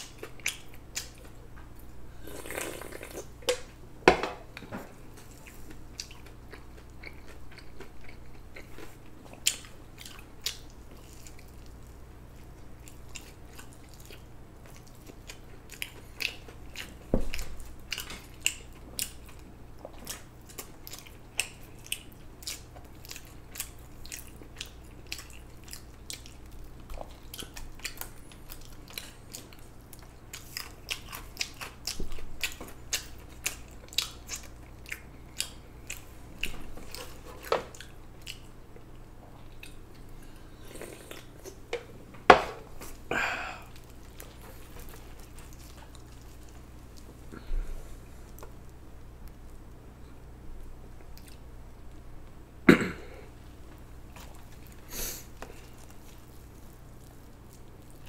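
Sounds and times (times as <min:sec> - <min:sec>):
steady low hum: 0:00.0 - 0:58.0
person chewing and biting: 0:02.2 - 0:03.6, 0:05.2 - 0:41.6, 0:42.8 - 0:47.3.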